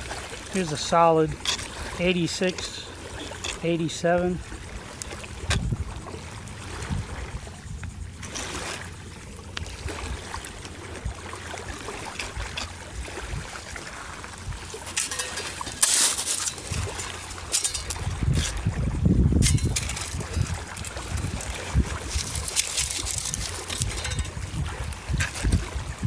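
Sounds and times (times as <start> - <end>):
wind buffeting microphone: 0.0 - 15.8, 16.4 - 26.0
small waves lapping: 0.0 - 26.0
metal scoop digging in gravelly sand: 0.5 - 4.3, 8.2 - 8.9, 11.9 - 25.9.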